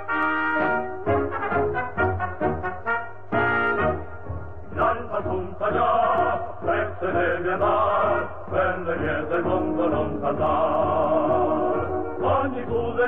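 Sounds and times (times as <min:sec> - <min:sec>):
song with voices singing: 0:03.7 - 0:13.0.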